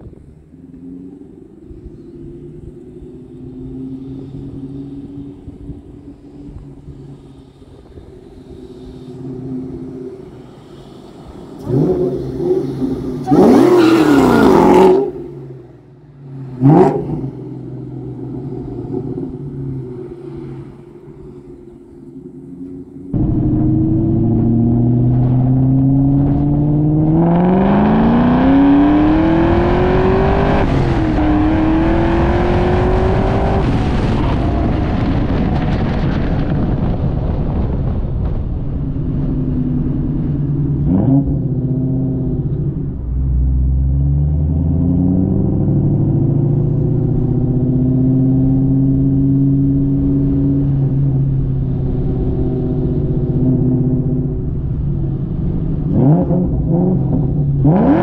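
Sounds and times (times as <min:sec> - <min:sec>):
car engine accelerating hard: 0:00.0 - 0:58.0.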